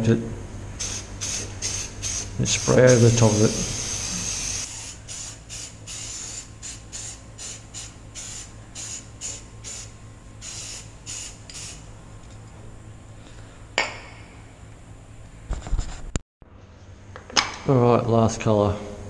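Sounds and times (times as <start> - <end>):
spray paint can hissing: 0.8 - 11.8.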